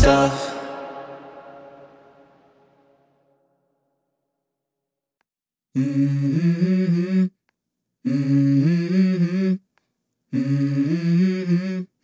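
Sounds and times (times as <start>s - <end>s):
person humming a melody: 5.8s - 7.4s, 8.0s - 9.6s, 10.3s - 12.0s.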